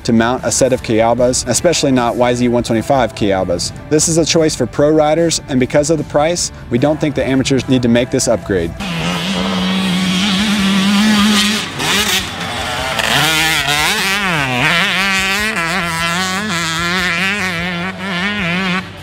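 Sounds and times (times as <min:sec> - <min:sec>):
two-stroke motocross engine revving: 0:08.7 - 0:19.0.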